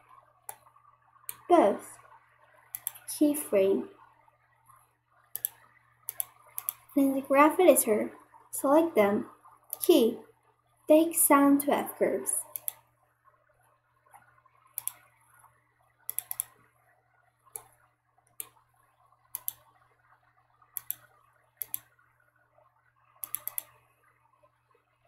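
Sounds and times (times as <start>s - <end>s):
faint steady hum: 0.0s - 25.0s
computer mouse buttons clicking: 1.3s - 1.5s, 2.7s - 3.2s, 5.3s - 6.9s, 9.7s - 10.0s, 12.4s - 12.9s, 14.8s - 15.1s, 16.1s - 16.6s, 17.5s - 17.8s, 18.4s - 18.6s, 19.3s - 19.7s, 20.8s - 21.9s, 23.2s - 23.8s.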